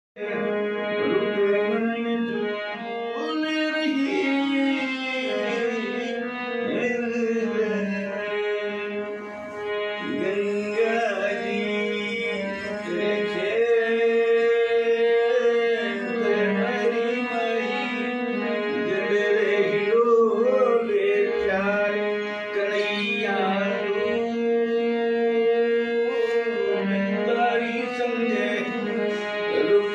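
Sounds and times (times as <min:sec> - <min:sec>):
harmonium chords: 0:00.2 - 0:29.9
man singing: 0:00.2 - 0:29.9.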